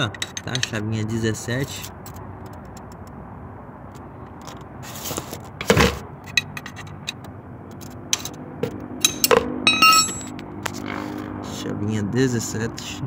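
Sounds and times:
spanner clinking and scraping: 0:00.0 - 0:00.9, 0:06.2 - 0:11.0.

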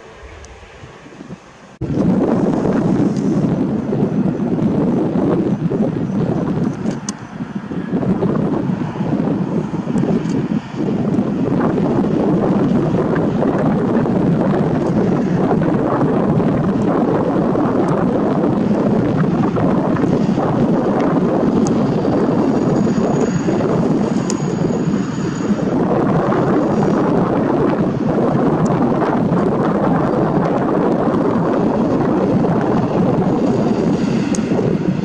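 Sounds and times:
wind buffeting microphone: 0:00.0 - 0:35.0.

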